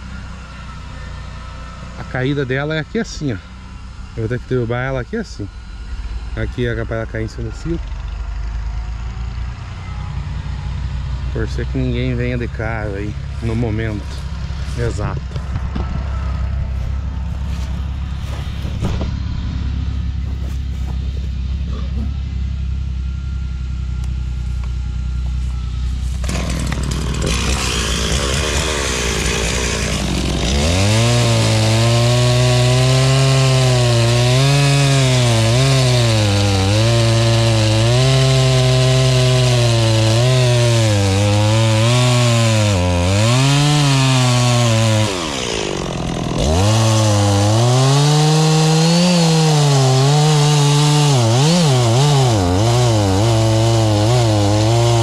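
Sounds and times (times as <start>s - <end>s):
chainsaw cutting wood: 11.1s - 22.2s, 25.9s - 55.0s.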